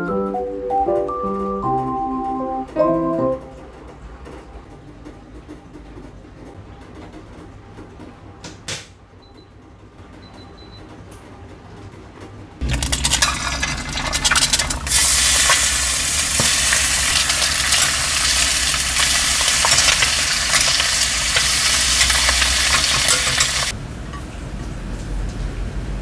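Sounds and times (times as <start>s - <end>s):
ham and egg sizzling in pan: 12.6s - 23.7s
metal tongs clicking on pan: 16.4s - 24.2s.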